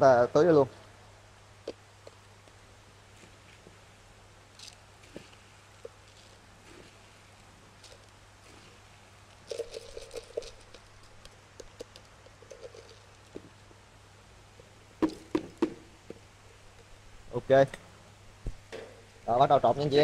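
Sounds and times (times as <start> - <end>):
jug knocking against bucket: 15.0 - 16.2.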